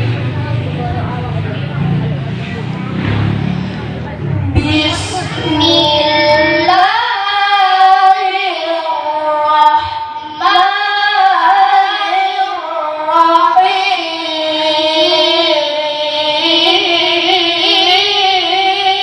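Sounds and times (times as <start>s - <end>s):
boy reciting melodically: 4.1s - 19.0s.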